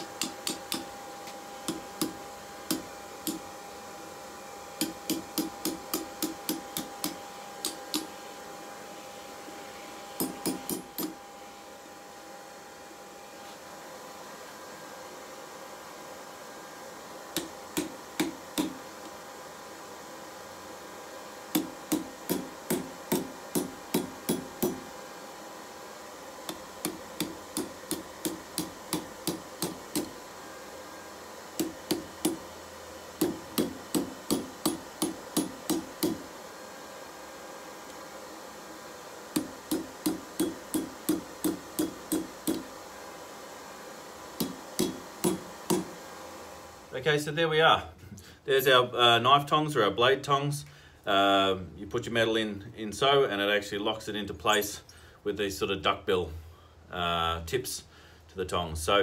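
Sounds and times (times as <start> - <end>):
hammer striking steel on anvil: 0.0 - 0.9, 4.8 - 8.1, 10.2 - 11.2, 21.5 - 24.9, 33.2 - 36.2, 39.4 - 42.7, 44.4 - 45.9.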